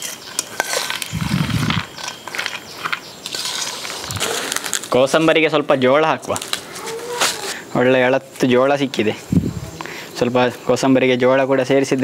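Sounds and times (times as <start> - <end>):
spoon scraping in metal bowl: 0.0 - 4.6.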